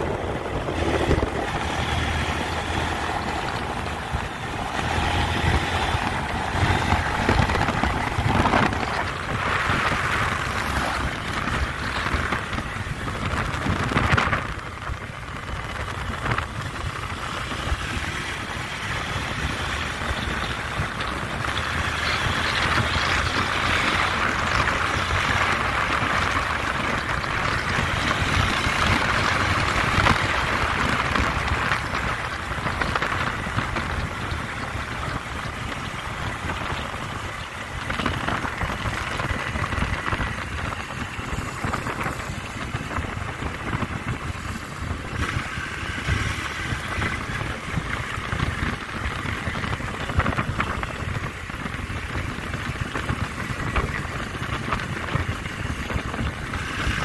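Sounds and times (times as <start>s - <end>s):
motorcycle engine running: 0.0s - 57.0s
wind noise on microphone: 0.0s - 57.0s.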